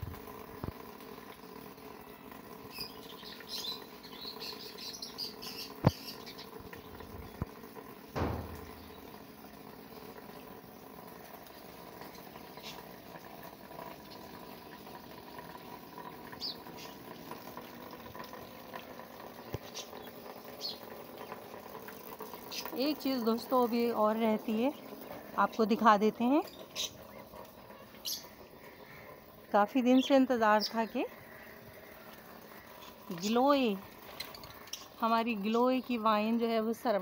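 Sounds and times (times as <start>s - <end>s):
small bird chirping: 2.7s - 7.5s, 8.3s - 9.2s, 16.3s - 17.0s, 26.4s - 28.4s
dull thump: 8.2s - 9.1s.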